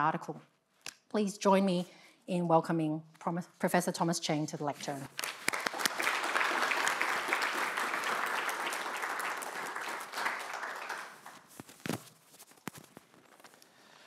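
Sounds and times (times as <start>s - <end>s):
audience applauding: 5.2s - 11.5s.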